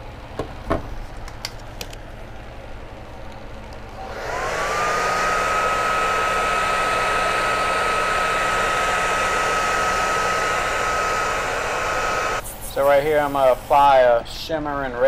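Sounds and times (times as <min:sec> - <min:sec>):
hair dryer whining: 0:03.8 - 0:12.4.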